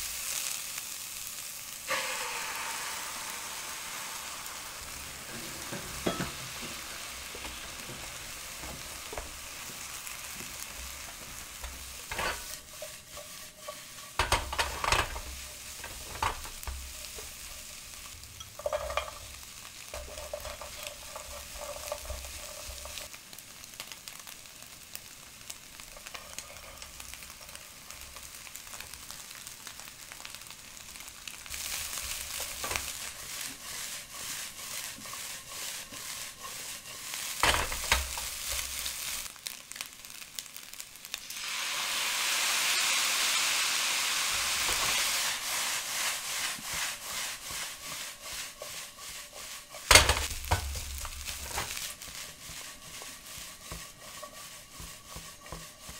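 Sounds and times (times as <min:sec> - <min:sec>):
rice sizzling in a wok: 0:00.0 - 0:55.9
plastic spatula scraping: 0:20.0 - 0:23.1, 0:46.0 - 0:55.9.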